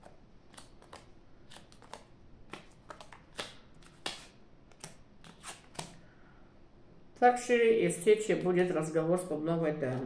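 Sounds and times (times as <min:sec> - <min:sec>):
playing cards flicked and slapped: 0:00.5 - 0:06.0.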